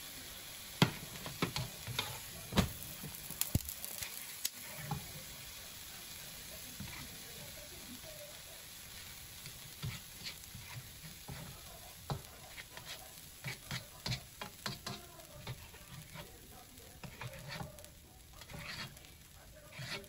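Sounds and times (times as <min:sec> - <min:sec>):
faint oil sizzle: 0:00.0 - 0:20.0
spoon scraping and tapping wok: 0:00.8 - 0:05.4, 0:06.6 - 0:07.6, 0:08.9 - 0:20.0.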